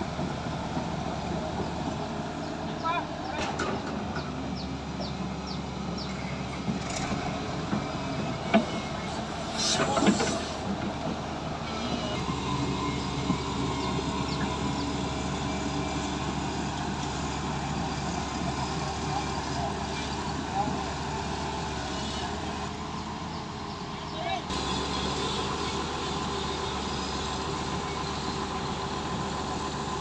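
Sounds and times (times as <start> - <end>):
excavator diesel engine running: 0.0 - 30.0.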